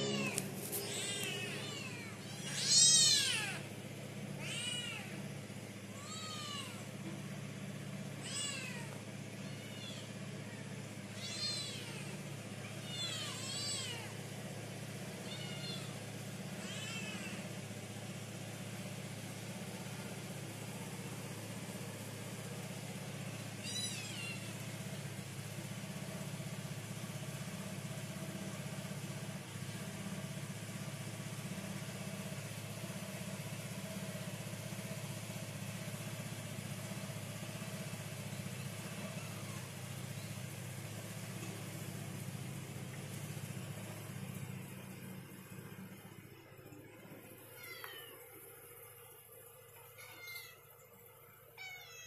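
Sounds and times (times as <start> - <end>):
cat meowing: 0.0 - 3.6, 4.4 - 5.2, 5.9 - 6.8, 8.2 - 14.1, 15.2 - 16.0, 16.6 - 17.4, 23.6 - 24.5, 47.5 - 48.2, 50.0 - 50.6, 51.6 - 52.0
low mechanical hum: 0.0 - 52.0.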